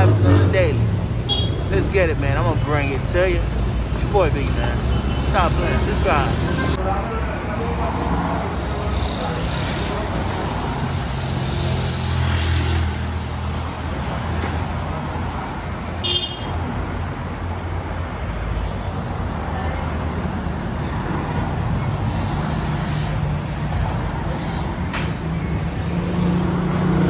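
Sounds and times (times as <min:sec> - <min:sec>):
street traffic rumble: 0:00.0 - 0:27.0
short high horn toot: 0:01.3 - 0:01.7.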